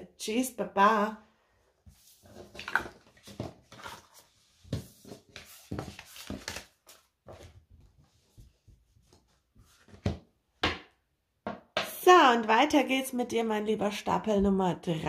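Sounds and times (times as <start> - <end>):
cards rustling and sliding on table: 1.8 - 10.2.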